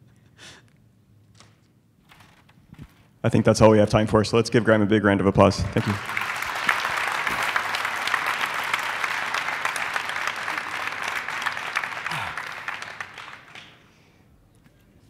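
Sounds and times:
audience applauding: 0:05.6 - 0:14.0.

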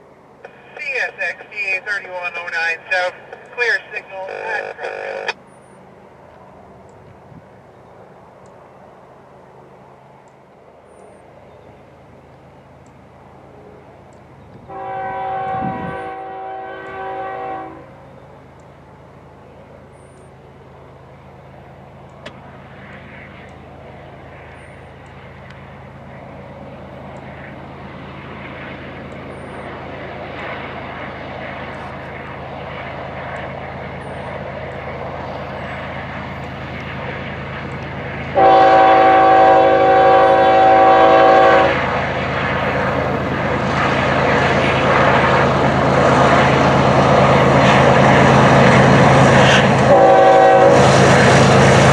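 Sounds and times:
train wheel rumble: 0:00.0 - 0:51.9
train air horn blasts: 0:14.7 - 0:18.0, 0:38.4 - 0:41.9, 0:49.4 - 0:51.1.

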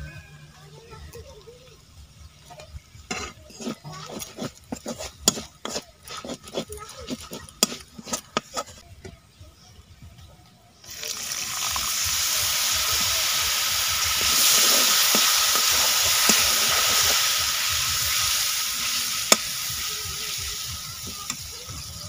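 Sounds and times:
loud sizzle in a wok: 0:00.1 - 0:08.6, 0:10.8 - 0:22.0
metal spatula stirring: 0:03.0 - 0:08.8, 0:13.9 - 0:17.9.

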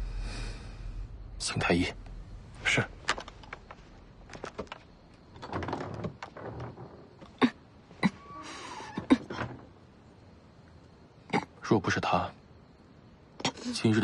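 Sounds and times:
rustling: 0:00.4 - 0:09.8
sharp knocks and thuds: 0:01.4 - 0:07.4.

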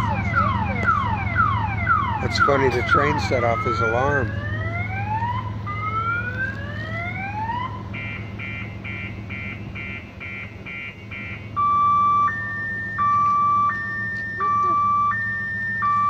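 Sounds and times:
car alarm cycling tones: 0:00.0 - 0:16.0.

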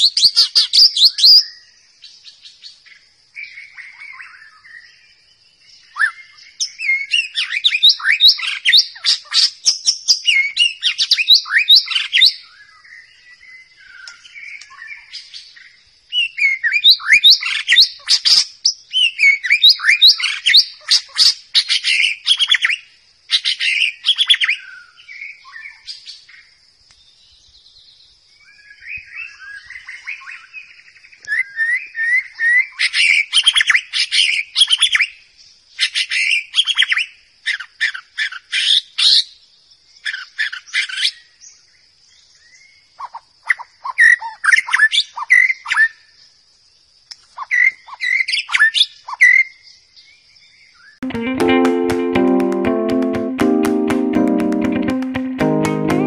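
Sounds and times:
bird singing whistled notes: 0:00.0 - 0:26.4, 0:28.4 - 0:35.2.

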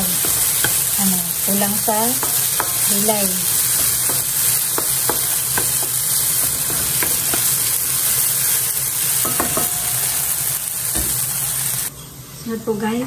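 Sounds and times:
spatula scraping and tapping pan: 0:00.0 - 0:10.2
potatoes sizzling in frying pan: 0:00.0 - 0:11.9.

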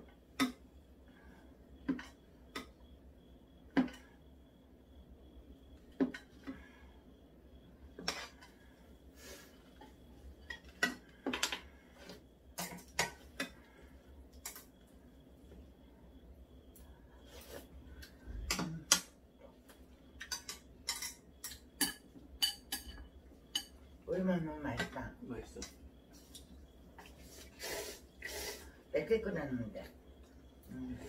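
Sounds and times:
utensils clinking on pot and bowls: 0:20.2 - 0:23.9.

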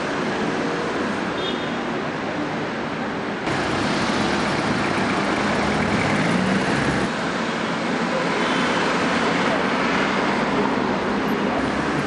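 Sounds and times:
cars passing: 0:03.4 - 0:12.0.

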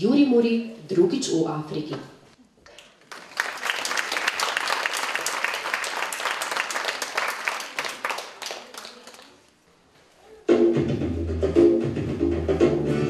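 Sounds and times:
audience applause: 0:02.8 - 0:09.4
music: 0:10.5 - 0:13.0.

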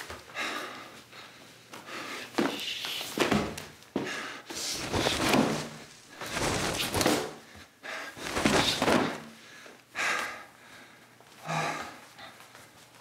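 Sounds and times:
laundry thudding and swishing: 0:04.7 - 0:07.4, 0:08.2 - 0:09.3.

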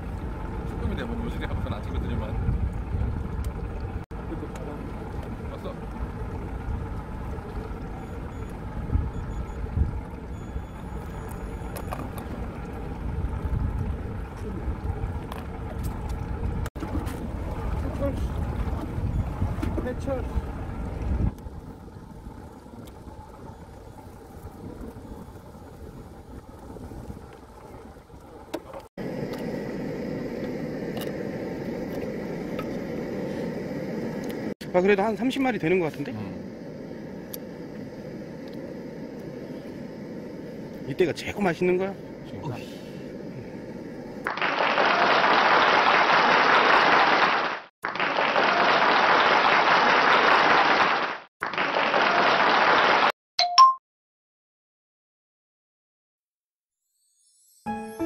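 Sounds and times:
wind: 0:00.0 - 0:50.9
water: 0:00.0 - 0:53.1
gas stove burner hissing: 0:28.3 - 0:44.3
many hands clapping: 0:44.3 - 0:53.1.

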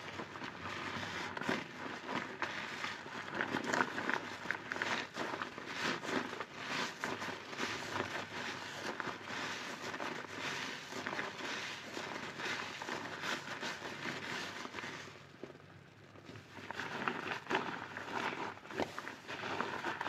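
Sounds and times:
sponge squelching: 0:00.0 - 0:15.6, 0:16.2 - 0:20.0
foam bubbles popping: 0:00.0 - 0:20.0.

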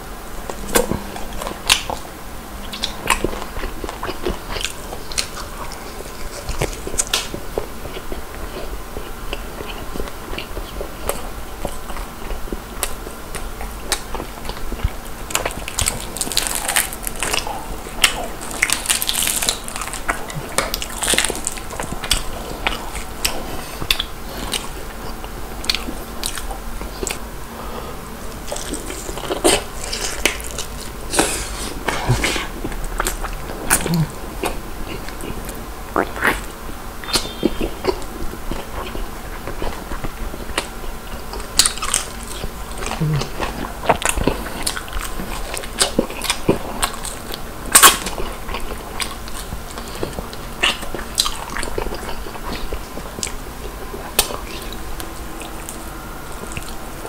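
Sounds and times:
biting and chewing crispy chicken: 0:02.7 - 0:27.3, 0:28.2 - 0:57.0
fried batter crackling: 0:12.8 - 0:23.4.

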